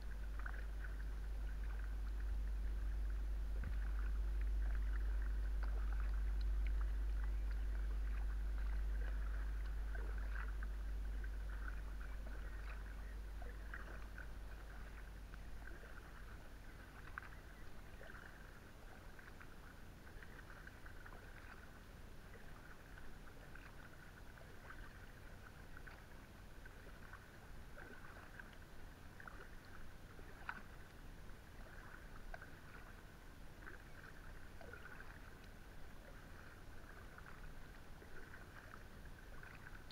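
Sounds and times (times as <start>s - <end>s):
low rumble: 0.0s - 19.5s
paddle strokes and drips: 0.0s - 39.9s.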